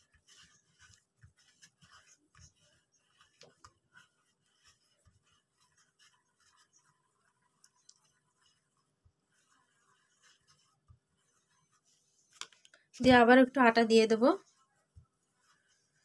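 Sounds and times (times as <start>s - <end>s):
hands rolling dough on wooden board: 0.0s - 16.0s.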